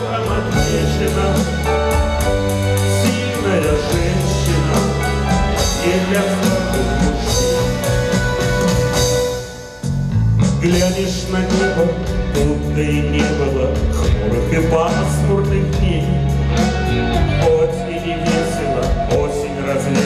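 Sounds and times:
man singing: 0.0s - 8.0s, 10.5s - 20.0s.

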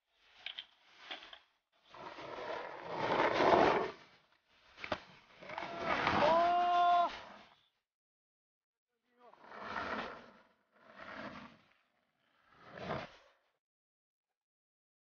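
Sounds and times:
skateboard wheels rolling on concrete: 0.1s - 7.6s, 9.4s - 13.4s.

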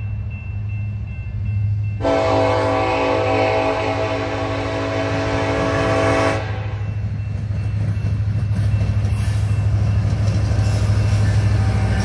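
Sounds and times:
locomotive engine rumble: 0.0s - 12.0s
locomotive air horn chord: 2.0s - 6.8s.

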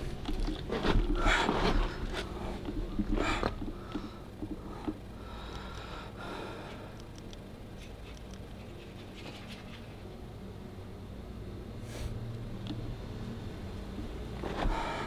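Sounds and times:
person breathing close: 1.1s - 7.0s, 11.8s - 12.2s, 14.5s - 15.0s.

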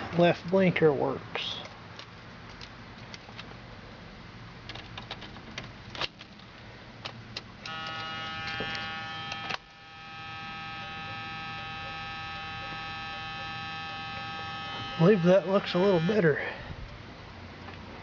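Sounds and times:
control clicks and key rattle: 4.7s - 9.7s
electric buzz: 7.6s - 16.5s.

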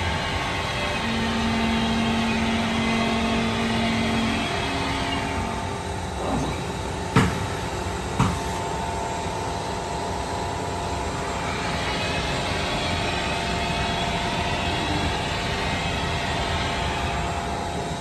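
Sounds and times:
machinery hum: 0.0s - 18.0s
sharp knocks: 7.1s - 7.5s, 8.2s - 8.5s.

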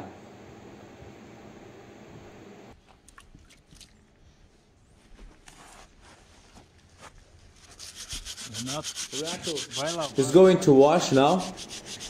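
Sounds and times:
scrub brush scrubbing hoof: 7.6s - 12.0s.

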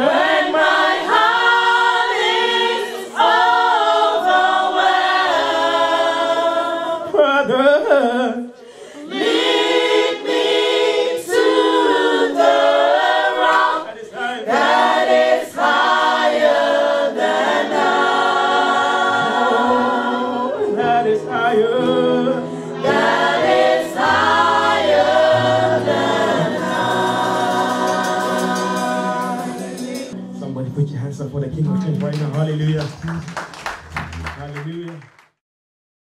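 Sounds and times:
women singing in harmony: 0.0s - 8.0s, 9.0s - 30.2s
man leading gospel singing: 20.6s - 22.5s, 25.8s - 33.4s.

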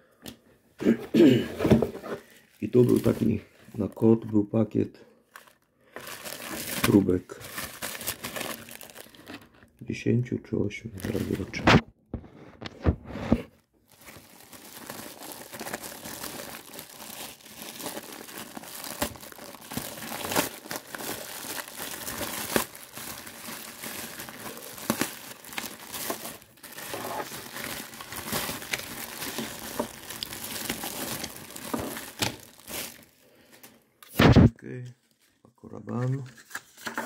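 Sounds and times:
plastic bag crinkling: 2.3s - 4.3s, 5.3s - 9.7s, 10.9s - 11.6s, 13.8s - 33.5s.

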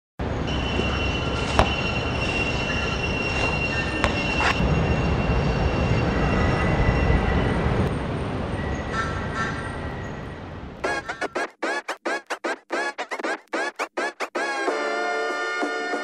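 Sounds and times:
high-pitched squeal: 0.2s - 14.8s
music: 13.6s - 16.0s.

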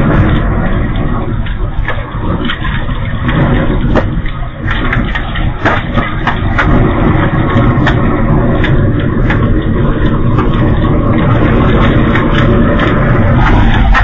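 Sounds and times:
fire crackles and pops: 0.0s - 14.0s
low roar of flames: 0.0s - 14.0s.

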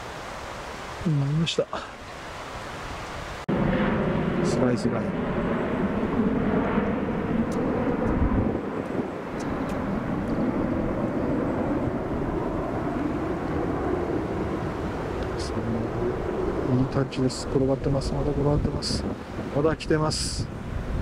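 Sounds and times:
steady rumbling outdoor roar: 0.0s - 21.0s.

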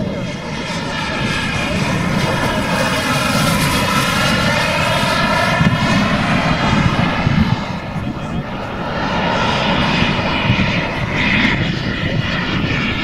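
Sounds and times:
model jet turbines flying past: 0.0s - 13.0s.

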